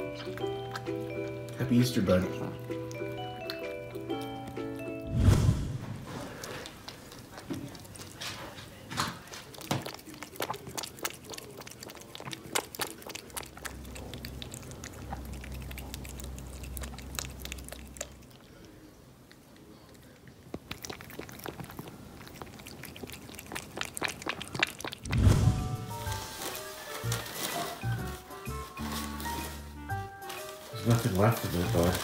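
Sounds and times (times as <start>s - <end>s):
cat lapping milk: 0.0s - 5.0s, 6.1s - 25.1s, 30.9s - 32.0s.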